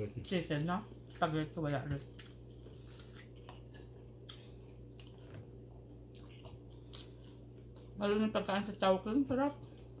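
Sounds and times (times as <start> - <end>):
chewing: 0.0 - 8.0
steady low hum: 0.0 - 10.0.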